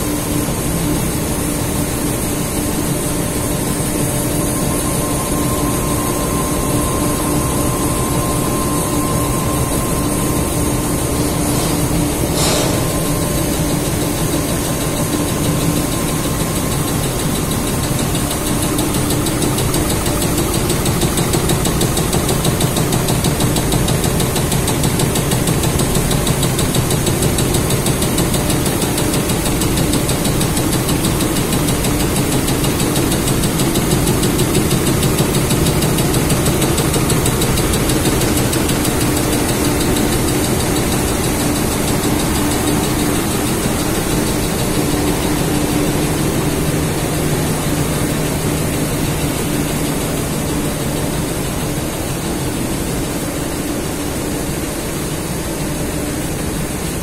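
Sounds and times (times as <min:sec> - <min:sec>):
textile machine din: 0:01.4 - 0:53.3.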